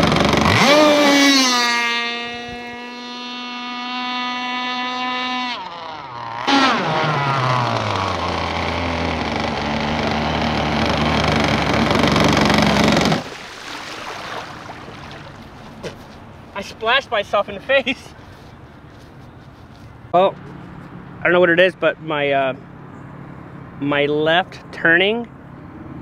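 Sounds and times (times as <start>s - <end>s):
model boat two-stroke engine: 0.0s - 13.3s.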